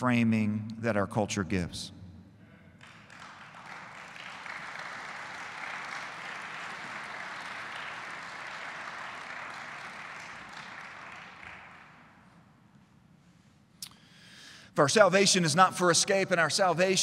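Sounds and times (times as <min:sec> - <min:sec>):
audience applauding: 0:02.8 - 0:12.2.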